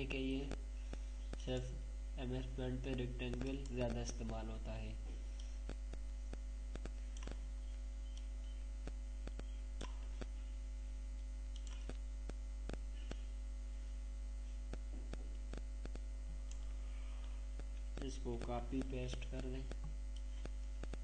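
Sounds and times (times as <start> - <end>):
electrical mains hum: 0.0 - 21.0
computer mouse clicks: 11.5 - 12.0.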